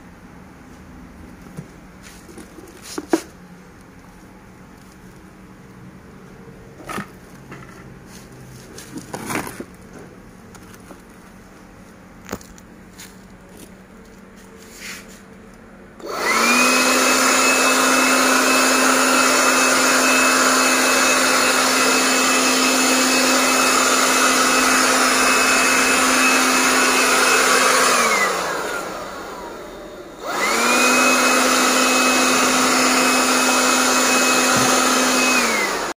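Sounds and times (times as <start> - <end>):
blower motor whining: 16.0 - 36.0.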